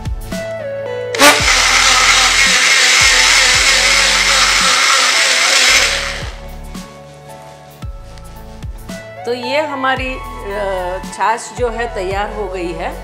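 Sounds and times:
soft background music: 0:00.0 - 0:01.1, 0:01.8 - 0:13.0
mixer grinder motor running: 0:01.2 - 0:06.5.

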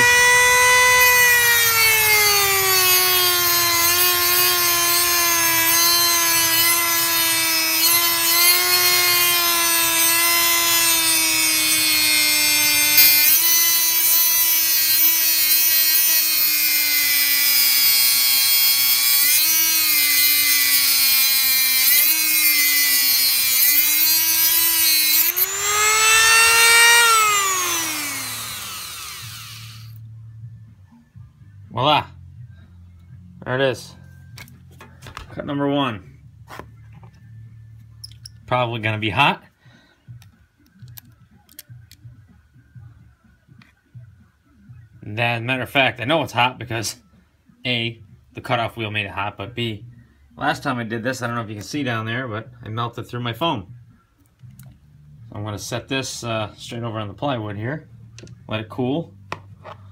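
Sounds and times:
rotary tool cutting metal: 0:00.0 - 0:30.0
rotary tool winding down: 0:00.0 - 0:30.0.

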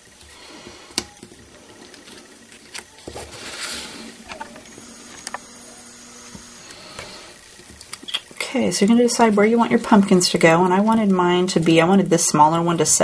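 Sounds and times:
paper rustling: 0:01.5 - 0:04.6.

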